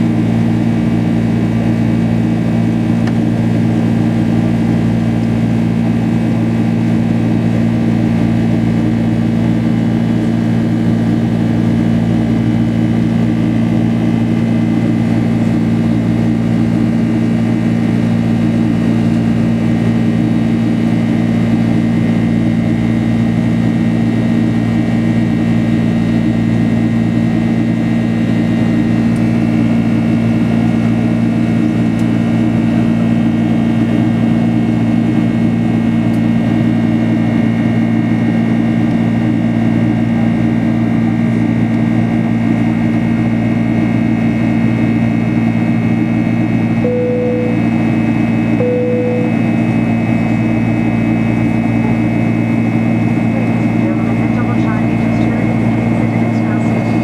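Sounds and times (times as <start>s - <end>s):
faint high whine: 46.8s - 50.0s
jet engines humming: 46.8s - 57.0s.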